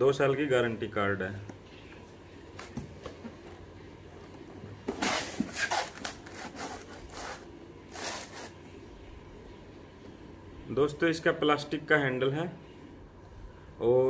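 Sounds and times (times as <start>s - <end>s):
cardboard box scraping: 4.9s - 8.5s.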